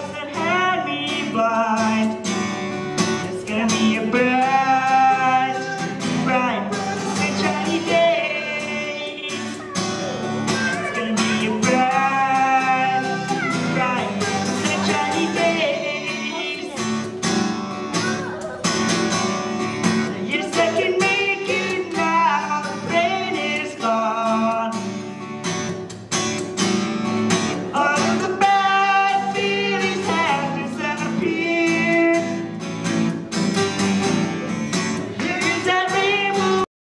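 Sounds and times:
people singing into microphones: 0:00.0 - 0:02.2, 0:03.3 - 0:09.8, 0:10.5 - 0:16.9, 0:20.1 - 0:24.8, 0:27.7 - 0:32.4
acoustic guitar: 0:00.0 - 0:36.7.

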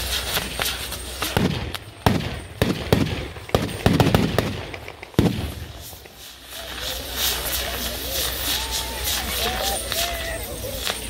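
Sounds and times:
firecrackers banging: 0:00.0 - 0:11.0.

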